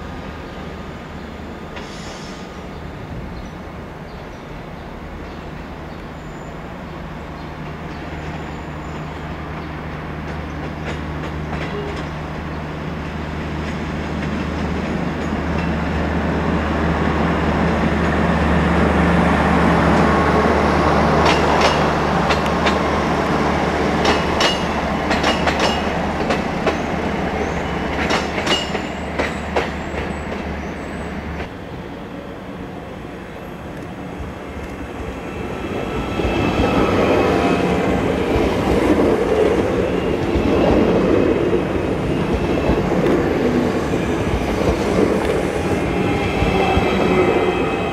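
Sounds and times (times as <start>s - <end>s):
train passing: 0.0s - 47.9s
wheels clicking over rail joints: 24.0s - 26.8s.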